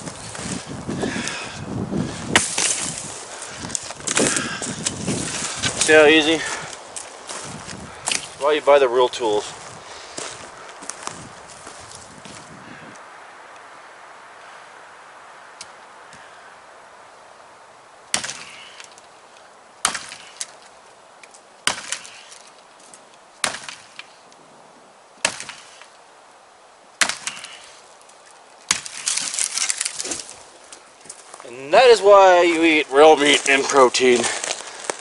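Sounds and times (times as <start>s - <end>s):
wood splitting and cracking: 0.0s - 8.6s, 18.1s - 19.1s, 19.8s - 24.2s, 25.2s - 26.0s, 27.0s - 35.0s
hatchet striking wood: 2.3s - 2.9s, 18.1s - 19.0s, 19.8s - 20.5s, 21.6s - 22.3s, 23.4s - 24.1s, 25.2s - 25.7s, 27.0s - 27.6s, 28.7s - 29.4s.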